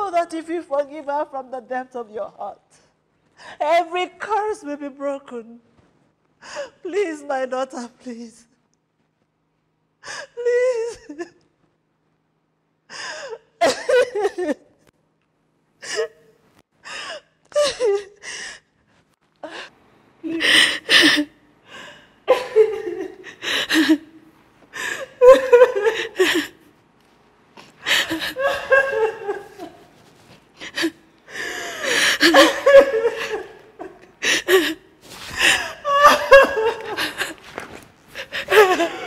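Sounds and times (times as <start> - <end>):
woman laughing breathily: 20.3 - 24.1, 24.7 - 26.6, 27.8 - 29.9, 30.6 - 37.6, 38.2 - 39.0.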